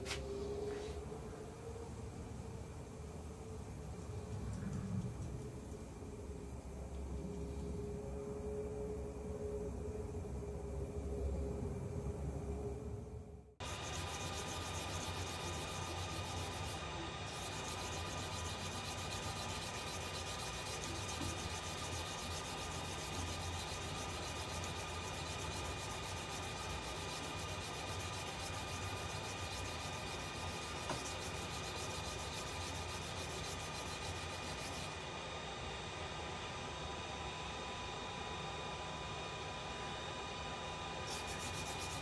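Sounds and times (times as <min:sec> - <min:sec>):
sandpaper rubbing on spinning wood: 0:13.6 - 0:35.0, 0:41.1 - 0:42.0
lathe motor hum: 0:13.6 - 0:35.2, 0:41.1 - 0:42.0.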